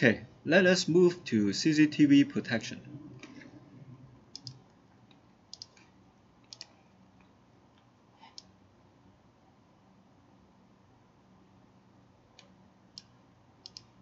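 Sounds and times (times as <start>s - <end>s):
computer mouse clicks: 4.3s - 8.5s, 12.4s - 13.9s.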